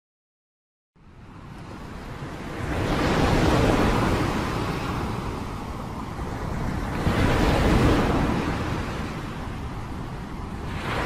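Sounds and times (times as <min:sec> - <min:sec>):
storm waves breaking against a seawall: 0:01.4 - 0:11.0.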